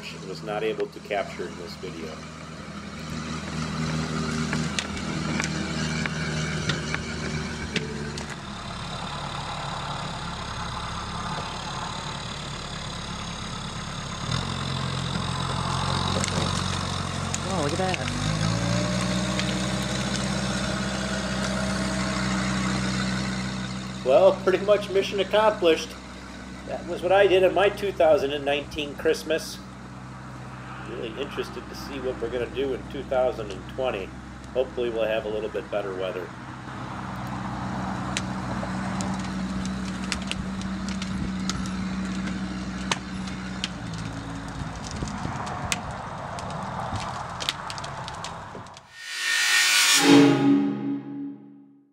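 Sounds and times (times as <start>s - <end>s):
diesel engine running under load: 0.0s - 48.8s
tree dragged across lawn: 14.2s - 29.2s
faint whine: 48.9s - 51.8s.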